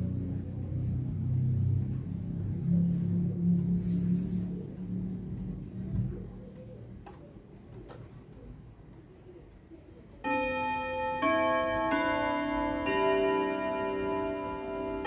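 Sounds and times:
clock chime melody: 0:10.2 - 0:15.0.

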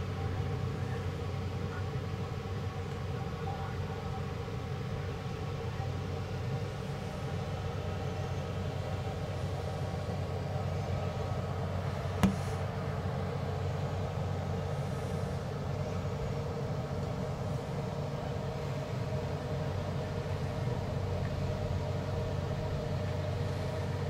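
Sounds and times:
low mechanical hum: 0:00.0 - 0:24.0.

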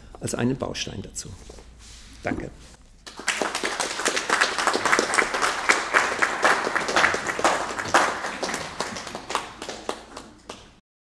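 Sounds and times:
audience applauding: 0:03.1 - 0:10.8.

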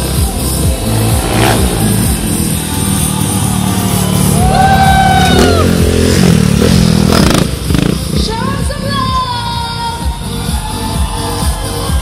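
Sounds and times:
motorcycle engine revving: 0:00.0 - 0:09.2
loud electronic music: 0:00.0 - 0:12.0.

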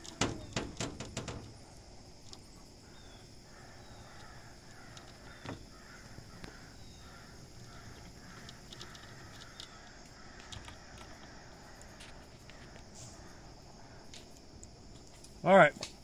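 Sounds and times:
sharp knock: 0:00.2 - 0:01.5
faint harsh bird caws: 0:02.7 - 0:14.5.

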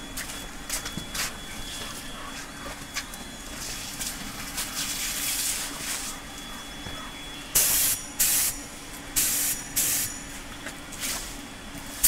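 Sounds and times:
steady low hum: 0:00.0 - 0:12.0
paint spray gun hissing: 0:07.6 - 0:08.5, 0:09.2 - 0:10.1.

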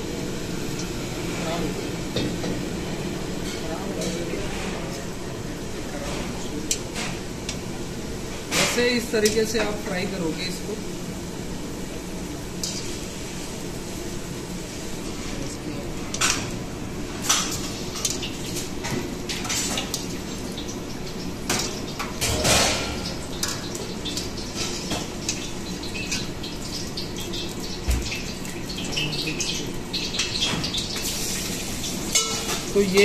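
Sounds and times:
deep-frying in hot oil: 0:00.0 - 0:33.0
skimmer clinking against pan: 0:32.1 - 0:33.0.

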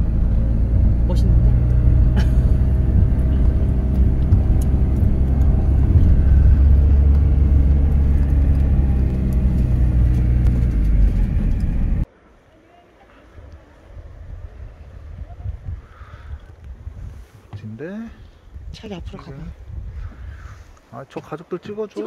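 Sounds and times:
van engine and road rumble: 0:00.0 - 0:12.2.

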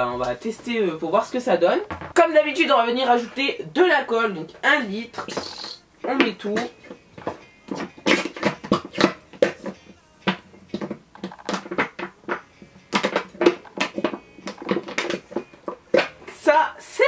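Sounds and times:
plastic bottle glugging: 0:01.9 - 0:02.2, 0:04.4 - 0:16.4.

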